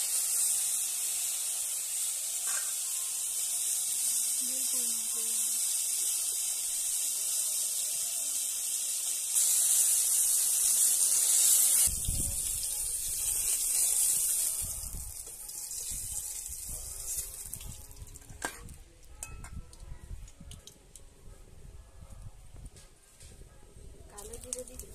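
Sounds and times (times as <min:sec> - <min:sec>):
eggplant sizzling in oil: 0:00.0 - 0:18.2.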